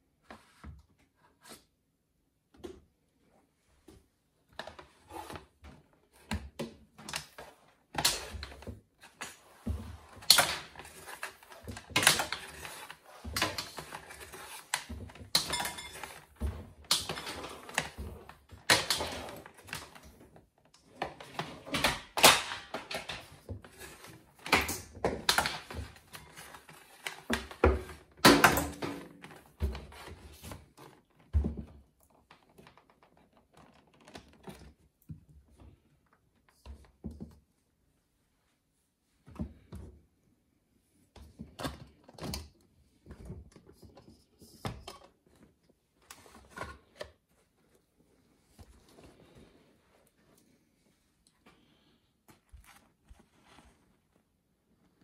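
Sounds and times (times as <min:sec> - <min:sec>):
hard objects clicking and clattering: 0:10.2 - 0:20.2.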